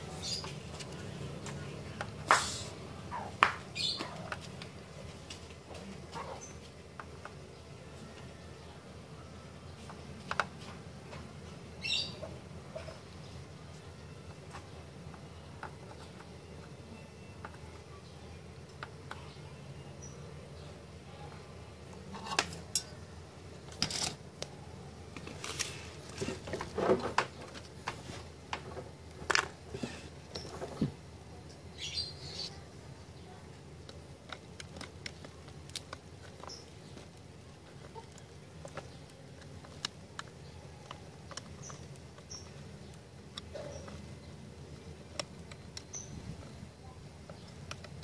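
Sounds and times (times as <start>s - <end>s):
clicks and taps of handled tools: 47.2s - 48.0s.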